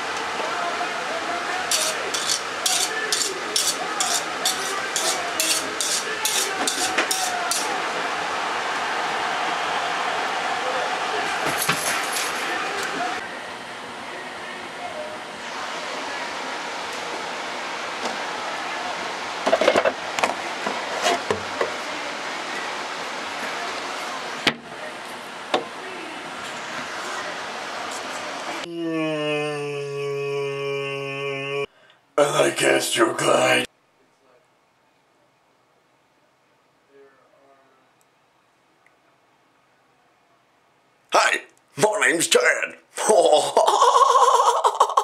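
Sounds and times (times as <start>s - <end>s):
knife scraped against sharpening steel: 1.7s - 7.7s.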